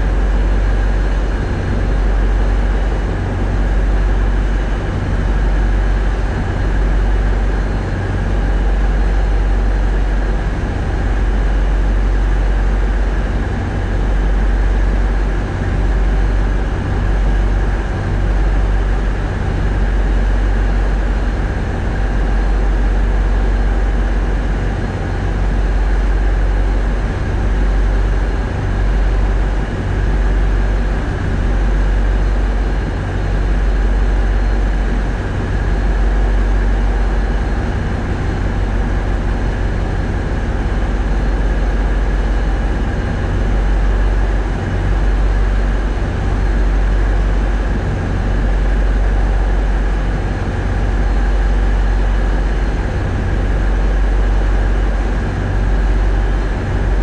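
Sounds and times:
thin steady whine: 0.0s - 57.0s.

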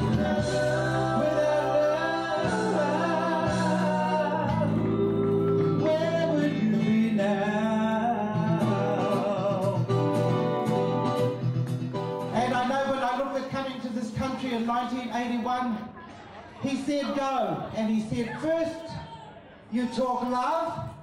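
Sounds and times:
instrumental accompaniment: 0.0s - 12.5s.

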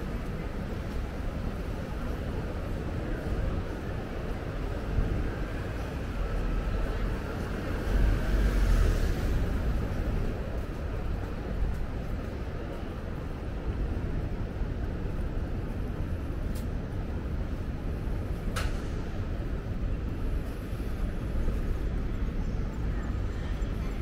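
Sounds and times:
road traffic rumble: 0.0s - 24.0s.

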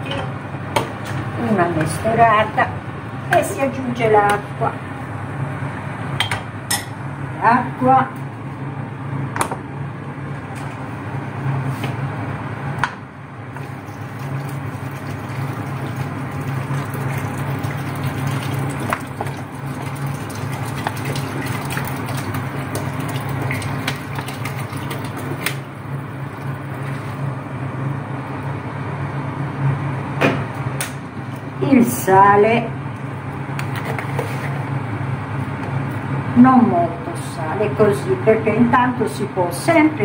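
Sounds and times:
steady low hum: 0.0s - 40.0s
water pouring into a pot: 13.6s - 27.2s.

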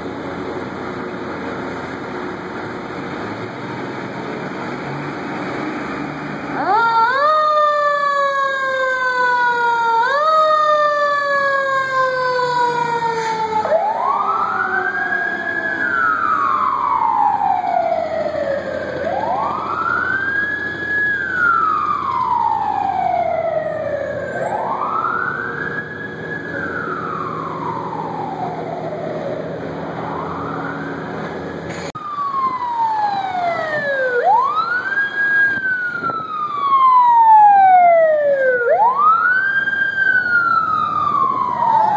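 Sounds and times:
fire engine siren wailing: 0.0s - 41.9s.

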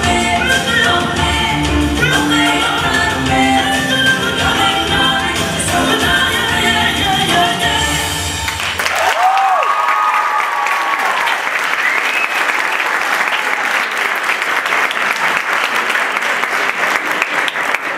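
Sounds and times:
audience cheering: 8.5s - 15.6s
audience applauding: 8.5s - 17.9s.

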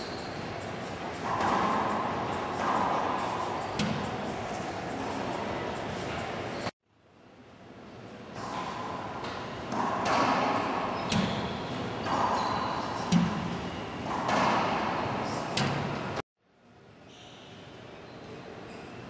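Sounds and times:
racquetball hits echoing: 1.2s - 4.7s, 8.4s - 16.0s.

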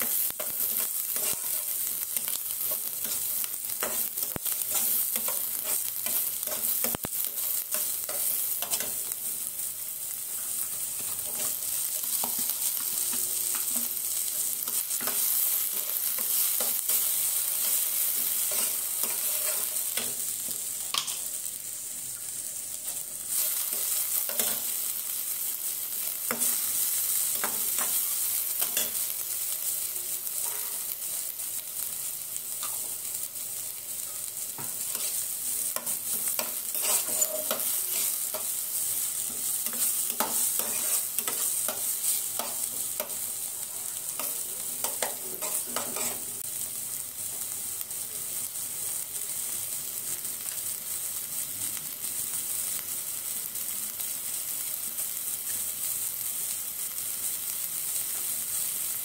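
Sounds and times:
vegetables sizzling in oil: 0.0s - 59.0s
spatula scraping pan: 14.7s - 20.2s, 34.6s - 38.6s, 39.2s - 43.2s, 44.2s - 46.3s.

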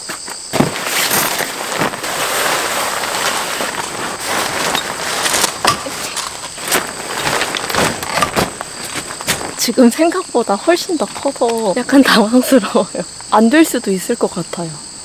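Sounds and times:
tent snapping open: 0.5s - 9.9s
nylon tent fabric rustling: 0.5s - 12.4s.

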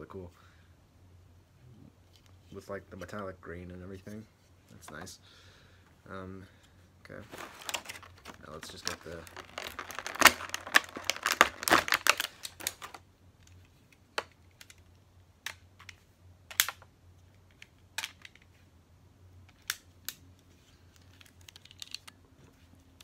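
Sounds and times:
plastic packaging crinkling: 7.2s - 13.0s, 20.8s - 22.1s
sharp plastic clicks: 8.9s - 18.5s.

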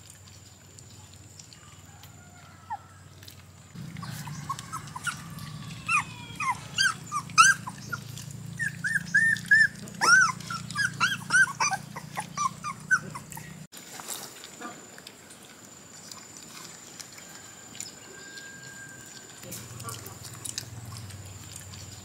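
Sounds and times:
dog whining and yelping: 3.9s - 13.7s.

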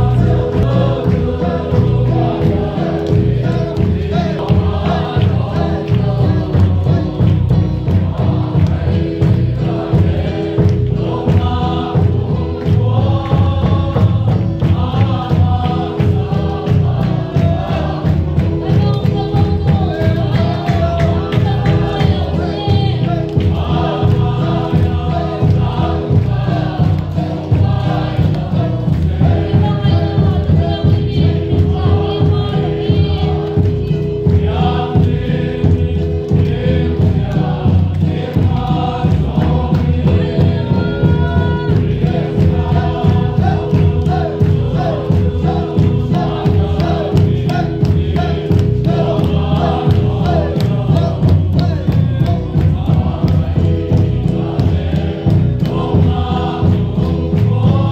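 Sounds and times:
amplified accompaniment with beat: 0.0s - 57.9s
congregation singing gospel song: 0.0s - 57.9s
people clapping along: 0.0s - 57.9s.

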